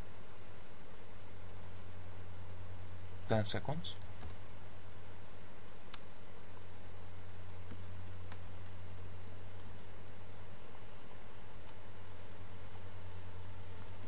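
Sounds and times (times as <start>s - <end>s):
steady low hum: 0.0s - 14.0s
computer mouse clicks: 0.4s - 0.7s, 1.5s - 1.8s, 2.5s - 3.3s, 4.0s - 4.4s, 5.8s - 6.8s, 7.4s - 10.4s, 11.5s - 11.8s.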